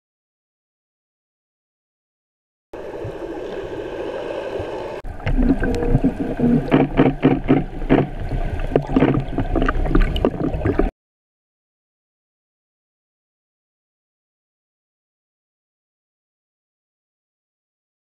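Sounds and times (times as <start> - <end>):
gurgling bubbles: 2.8 - 10.9
muffled underwater rush: 2.8 - 10.9
deep rumble: 5.2 - 10.9.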